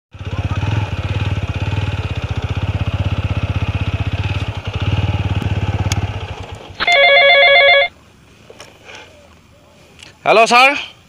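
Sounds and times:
motorcycle engine idling: 0.2s - 8.3s
mobile phone ringtone: 6.8s - 7.9s.

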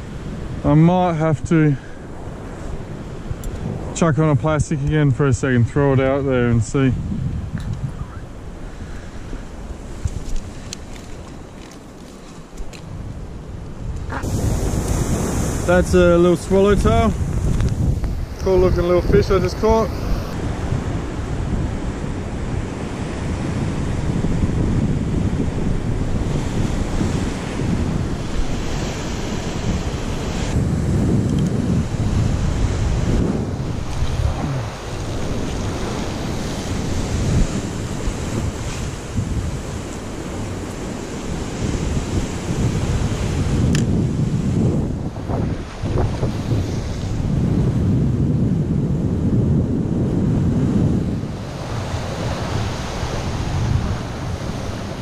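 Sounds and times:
wind buffeting microphone: 0.0s - 55.0s
ocean swell breaking on cliff: 13.2s - 55.0s.

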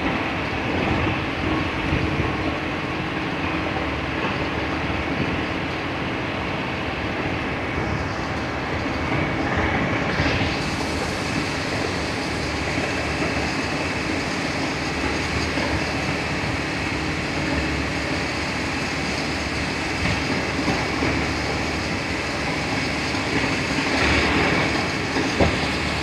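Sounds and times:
moving train running noise: 0.0s - 26.0s.

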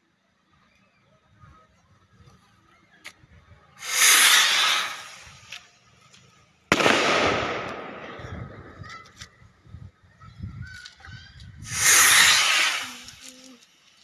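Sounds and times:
firecracker bangs: 3.8s - 5.5s, 6.7s - 9.0s, 11.7s - 13.2s.

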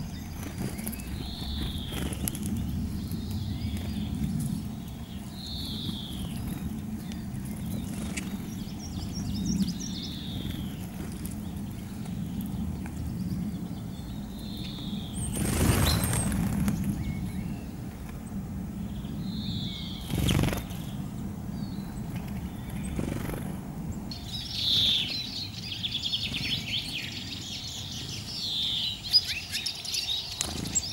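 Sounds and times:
songbird chirps: 0.0s - 30.9s
high twittering bird trill: 24.1s - 30.9s.

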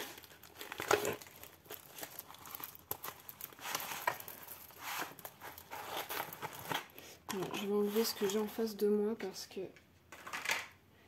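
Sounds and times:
plastic film crinkling: 0.0s - 8.6s.

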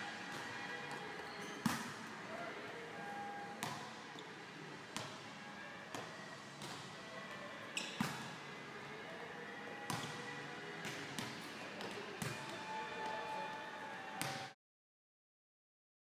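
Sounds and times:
volleyballs slapping in gym: 9.9s - 12.5s.

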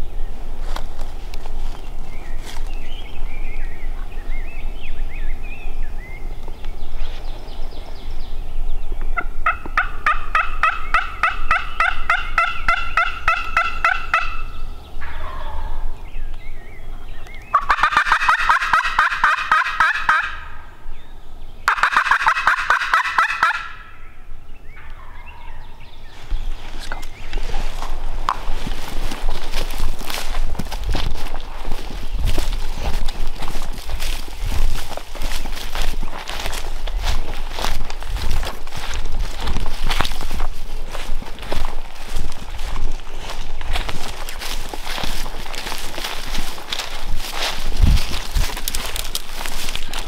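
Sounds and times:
wild turkey gobbling: 9.2s - 15.9s, 16.9s - 20.6s, 21.7s - 24.1s, 24.8s - 25.7s.

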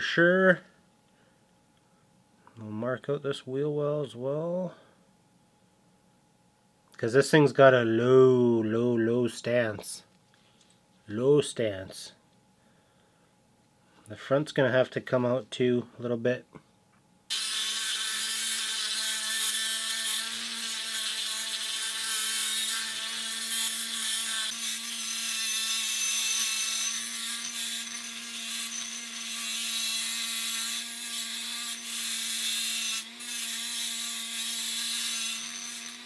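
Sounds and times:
rotary tool grinding metal: 17.3s - 36.0s.

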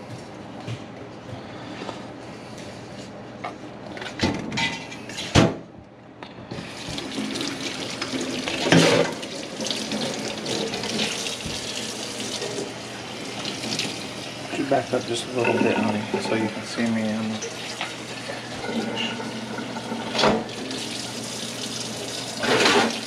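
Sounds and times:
water running into a sink: 6.6s - 23.0s.

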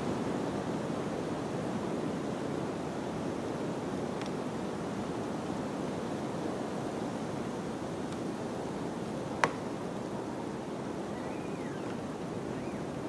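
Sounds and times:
faint chirp: 11.1s - 13.0s.

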